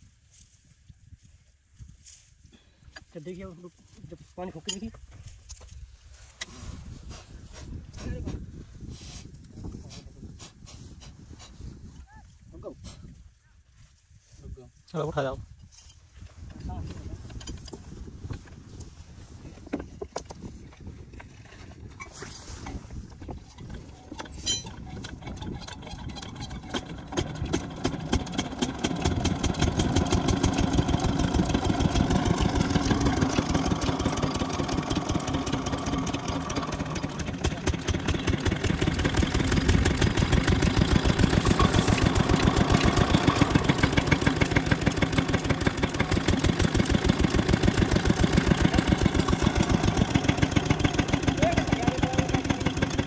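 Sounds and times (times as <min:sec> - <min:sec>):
diesel pump engine chugging: 0:23.6 - 0:53.0.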